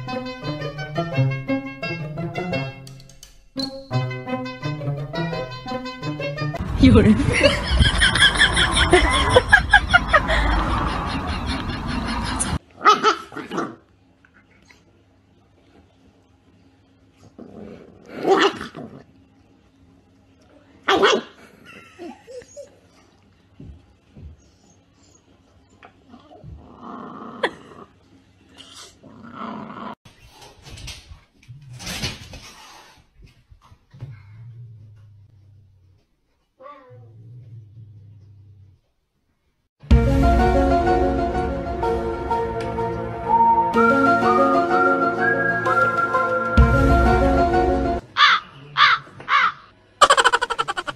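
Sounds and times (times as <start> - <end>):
noisy background: 6.6 - 12.6
dogs growling: 17.2 - 19.2, 26.0 - 30.0
dog squealing: 48.2 - 50.9.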